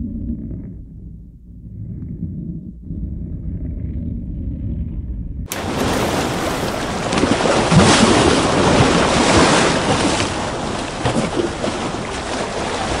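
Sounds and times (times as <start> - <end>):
low bubbling blips: 0.0 - 13.0
ocean water rushing: 5.5 - 13.0.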